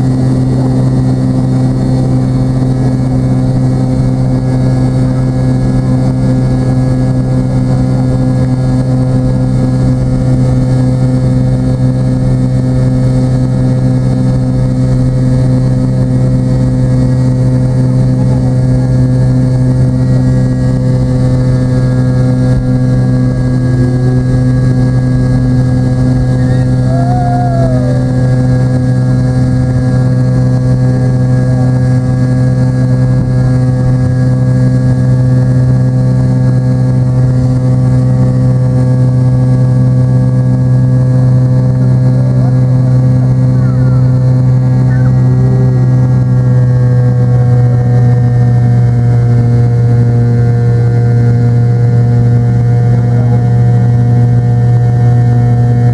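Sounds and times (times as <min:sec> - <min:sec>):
jet engines droning in cabin: 0:00.0 - 0:55.9.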